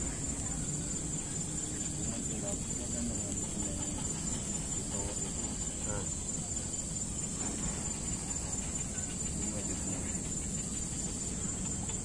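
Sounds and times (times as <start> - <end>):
distant voices: 0.0 - 12.0
high-pitched insect drone: 0.0 - 12.0.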